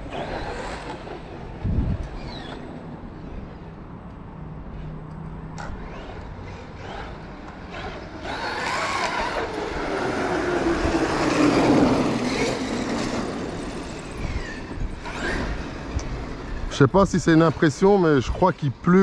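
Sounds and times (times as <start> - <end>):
electric toy truck motor whine: 0.0 - 1.5, 5.7 - 16.5.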